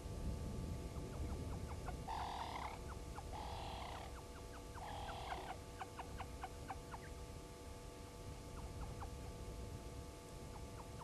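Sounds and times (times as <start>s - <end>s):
low wind rumble: 0.0s - 11.0s
raspy animal calls: 1.2s - 7.1s.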